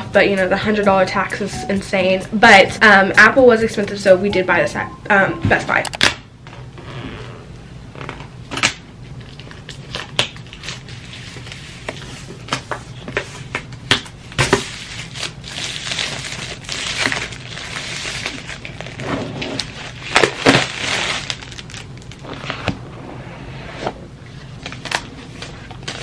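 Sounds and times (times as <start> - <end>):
plastic shrink-wrap crinkling: 9.2 - 12.2, 14.4 - 22.6.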